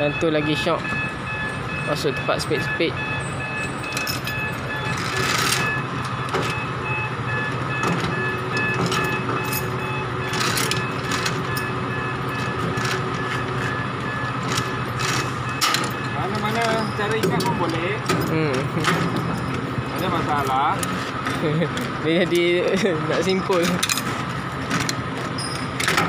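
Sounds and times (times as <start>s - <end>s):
chain binder clinking and clicking: 3.8s - 5.7s, 8.6s - 11.7s, 23.5s - 26.0s.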